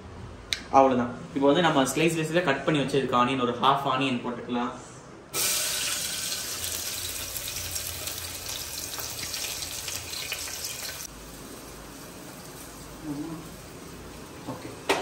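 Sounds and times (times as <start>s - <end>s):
onions sizzling in hot oil: 5.4s - 15.0s.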